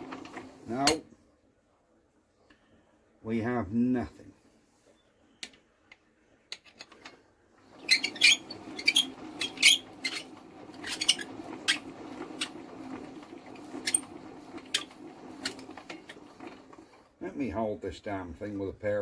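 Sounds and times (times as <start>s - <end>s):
metallic clicks and squeaks of tools: 7.8s - 11.8s.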